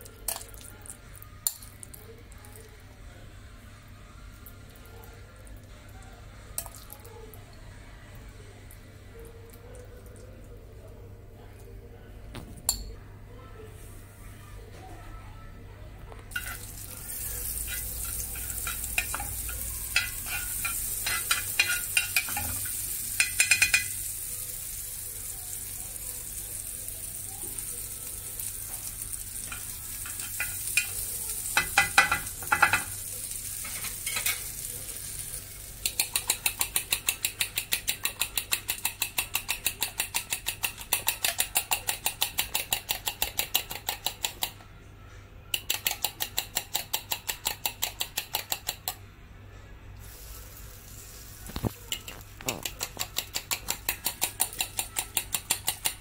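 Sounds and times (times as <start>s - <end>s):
fork beating eggs in glass bowl: 16.3s - 22.5s, 35.8s - 44.5s, 51.8s - 56.0s
butter sizzling in a pan: 16.3s - 37.1s, 50.0s - 52.3s.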